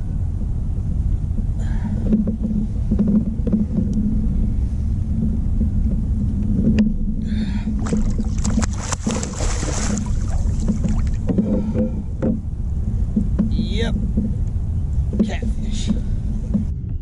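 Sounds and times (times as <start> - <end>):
wind rumbling on microphone: 0.0 - 17.0
water against kayak hull: 7.7 - 13.6.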